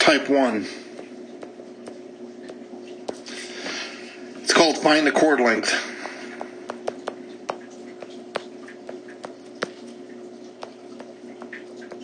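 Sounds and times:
stylus tapping on glass screen: 6.4 - 9.8.

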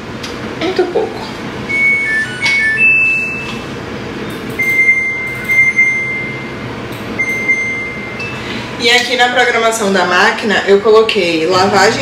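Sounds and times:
washing machine beeping: 1.5 - 9.7.

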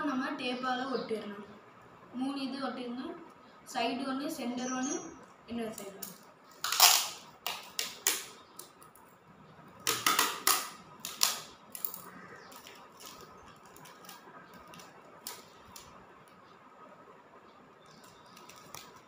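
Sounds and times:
faint tape crackling: 4.9 - 19.0
packing tape ripping off roll: 6.6 - 8.4, 9.9 - 15.9.

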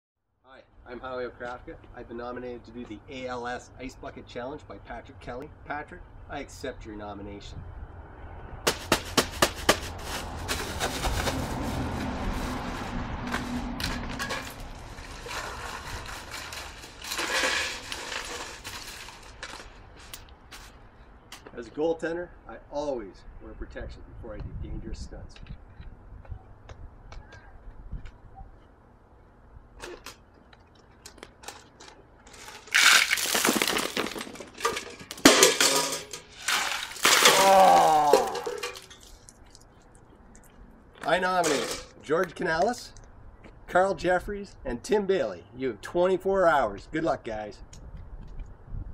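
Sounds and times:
rustling: 8.8 - 20.8
ice and water splashing: 9.8 - 19.6, 32.3 - 39.7
person shouting: 37.3 - 38.6.

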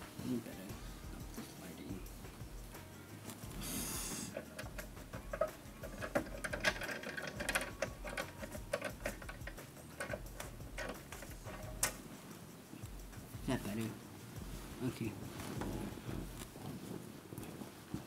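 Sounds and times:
small irregular clicks and taps: 4.3 - 14.0.

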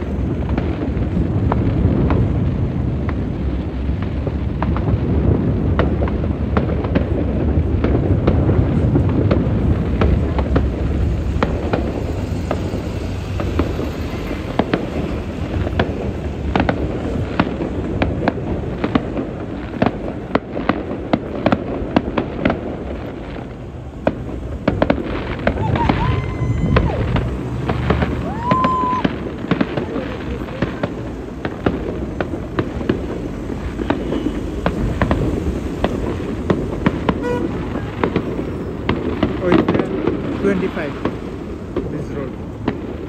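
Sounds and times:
continuous deep rumble: 0.0 - 43.0
distant fireworks bangs and crackles: 0.0 - 43.0.

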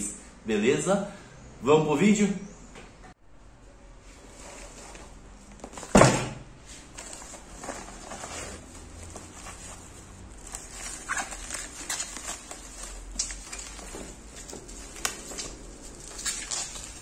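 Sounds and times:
loud thump: 5.9 - 6.5
plastic packaging rustling: 6.7 - 17.0.

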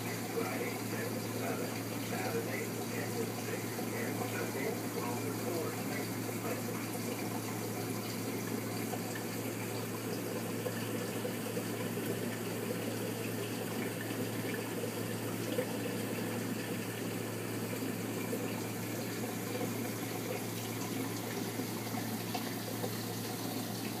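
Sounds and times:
water rushing and trickling: 0.0 - 24.0.

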